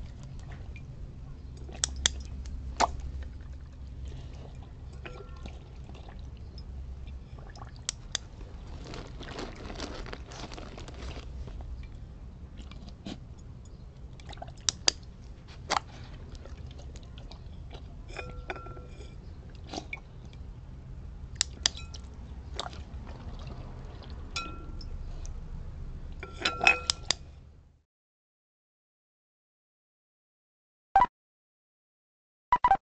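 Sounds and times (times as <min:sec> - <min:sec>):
dog lapping water in bowl: 0:01.6 - 0:08.1, 0:14.1 - 0:14.9, 0:15.6 - 0:18.7, 0:21.9 - 0:24.8
clinks against glass bowl: 0:04.9 - 0:05.6, 0:18.1 - 0:19.2, 0:21.6 - 0:22.1, 0:24.4 - 0:24.9, 0:26.2 - 0:27.1.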